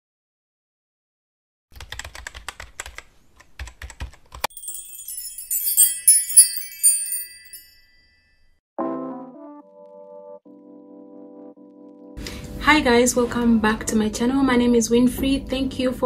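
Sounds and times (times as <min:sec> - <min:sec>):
keyboard typing clicks: 0:01.8 - 0:04.5
tinkling sparkle chimes: 0:04.5 - 0:08.5.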